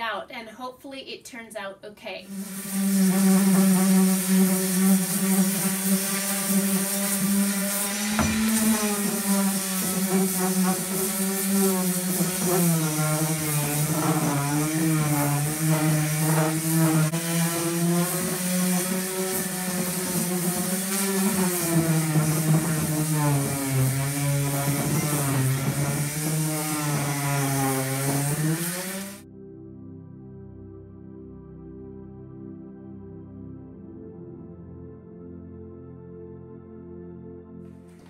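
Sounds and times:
orbital sander sanding wood: 2.3s - 29.2s.

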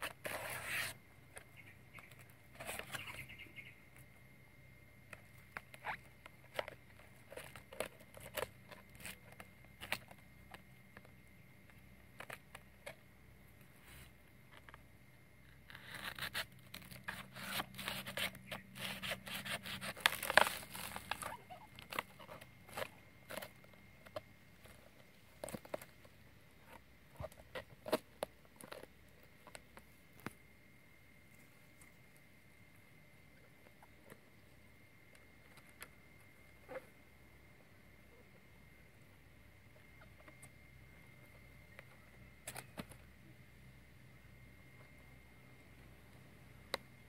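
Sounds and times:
leaf rustling and crinkling: 0.0s - 3.8s, 15.6s - 29.6s
machete scraping and cutting leaf: 15.7s - 22.0s.

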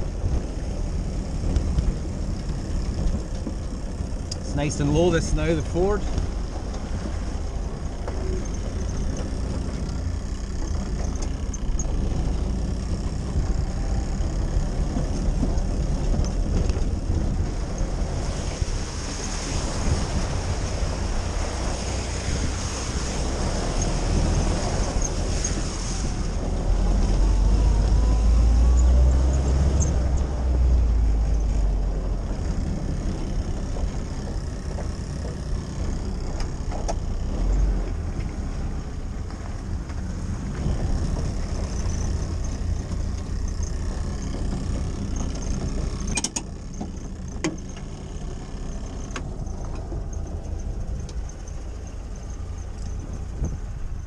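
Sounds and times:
jeep engine running: 0.0s - 54.0s
tyre noise on wet track: 0.0s - 54.0s
splashing through water: 14.8s - 34.3s.

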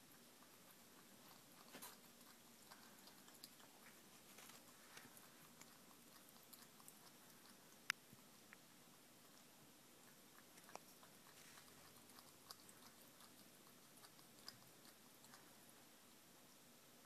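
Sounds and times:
cat chewing food: 0.0s - 17.0s
room hiss: 0.0s - 17.0s.

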